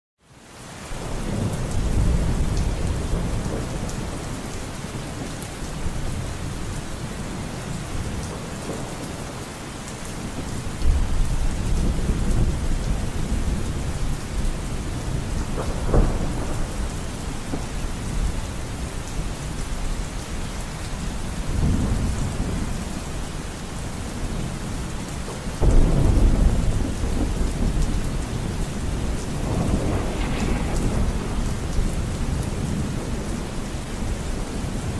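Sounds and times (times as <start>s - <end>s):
steady rain: 0.2s - 34.9s
thunder rolling: 10.8s - 18.4s, 25.6s - 34.9s.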